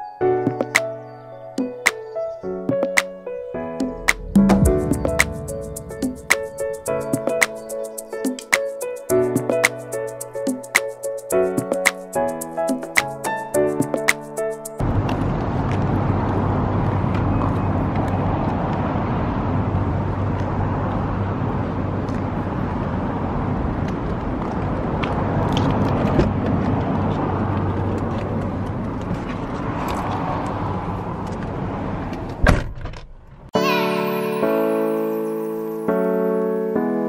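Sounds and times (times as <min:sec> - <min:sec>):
low engine hum: 0:14.8 - 0:32.4
car door shutting: 0:32.2 - 0:33.2.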